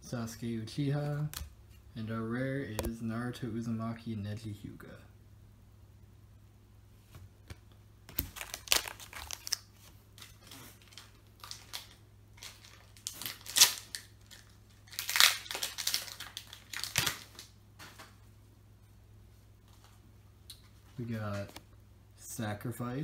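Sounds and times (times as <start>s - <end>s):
foil wrapper crinkling and tearing: 8.1s - 17.5s.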